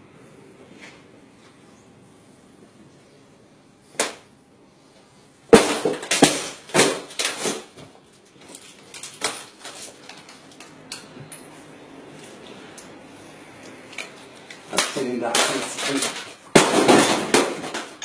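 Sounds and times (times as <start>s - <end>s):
loud bangs and rattles: 14.7s - 18.0s.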